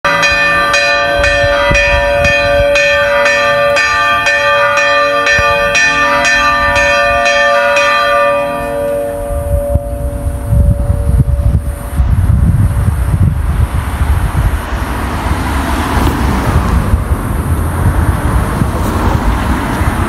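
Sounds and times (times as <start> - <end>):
church bells ringing: 0.0 - 12.0
wind buffeting microphone: 0.2 - 20.0.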